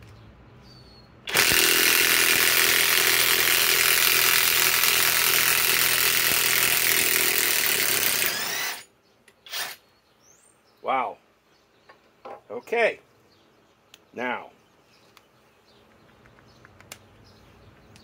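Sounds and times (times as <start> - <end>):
impact wrench hammering: 1.3 - 8.8.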